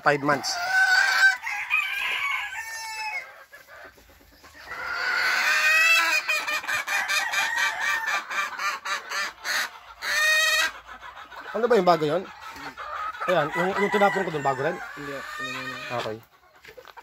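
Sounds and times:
chickens clucking: 0.0 - 17.0
rooster crowing: 0.2 - 3.3, 6.9 - 8.3, 13.3 - 15.7.

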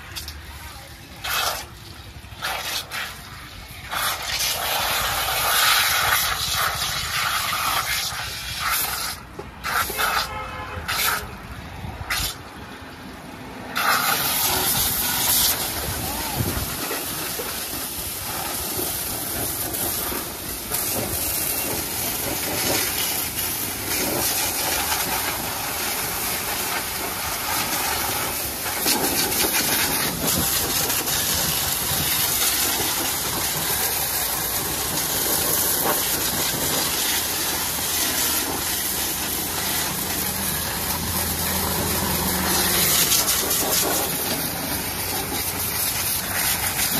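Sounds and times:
pressure washer jet hissing: 0.0 - 12.6, 13.4 - 46.9.

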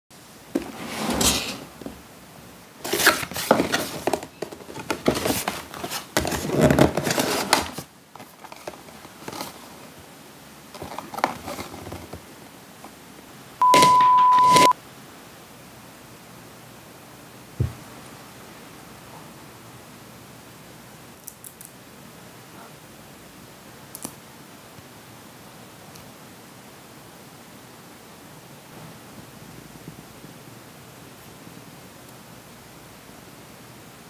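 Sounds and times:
cardboard packaging rustling: 2.8 - 10.0, 10.7 - 12.3
steady high beep: 13.6 - 14.7.

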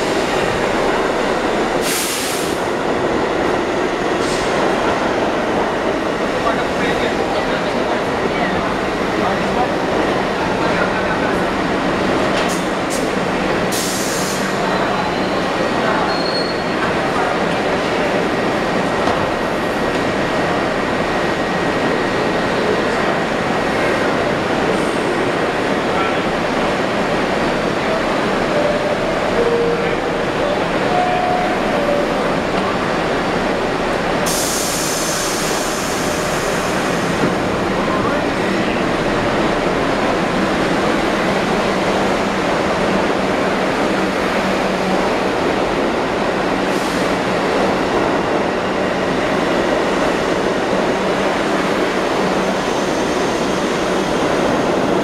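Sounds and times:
subway train wheels rumbling: 0.0 - 55.0
faint high squeal: 16.1 - 16.8.

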